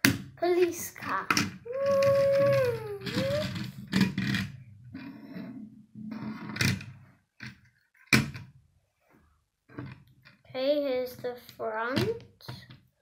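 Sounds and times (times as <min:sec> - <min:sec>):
toy car rolling on wooden table: 0:00.6 - 0:08.4
toy car knocking: 0:01.2 - 0:04.5.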